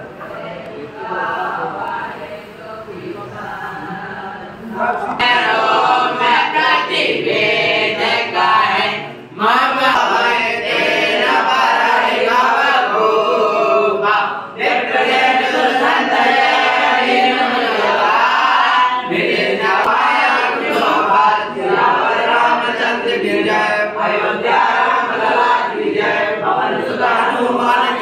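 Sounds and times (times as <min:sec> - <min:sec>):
group singing devotional chant: 0:00.0 - 0:28.0.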